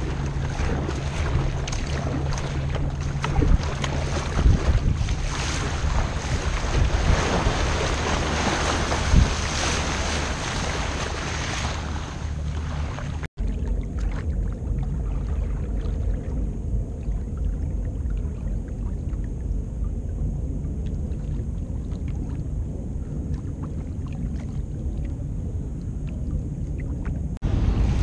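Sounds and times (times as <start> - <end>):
splashes and drips: 0.0 - 20.0
low rumble: 0.0 - 28.0
water slapping against hull: 0.0 - 28.0.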